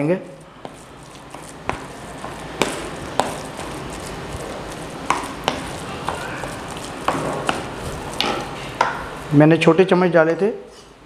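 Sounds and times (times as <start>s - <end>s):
spoon stirring minced meat: 0.4s - 9.3s.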